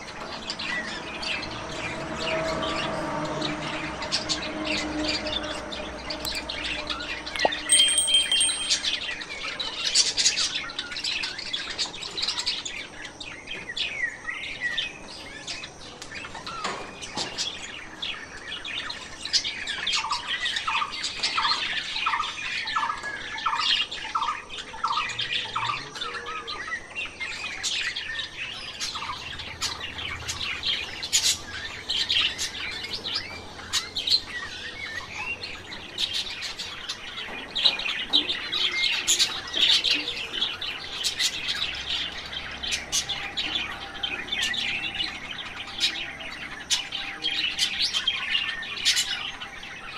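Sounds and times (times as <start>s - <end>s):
small birds chirping and calling: 0.0s - 49.9s
lower evenly spaced bird notes: 3.5s - 9.7s, 17.5s - 49.9s.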